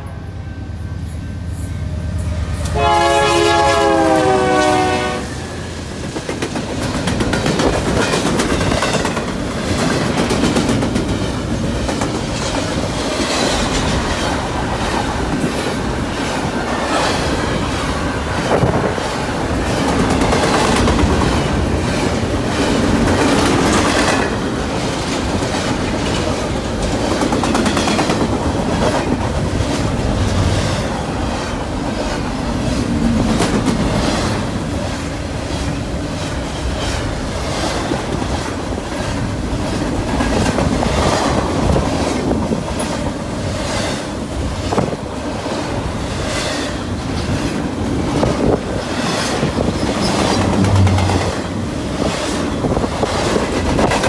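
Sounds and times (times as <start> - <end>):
train rumbling past: 0.0 - 54.0
train horn blast: 1.9 - 5.6, 50.4 - 51.6.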